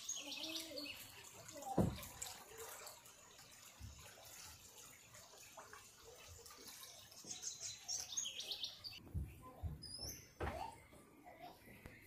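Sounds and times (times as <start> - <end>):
flowing floodwater: 0.0 - 9.0.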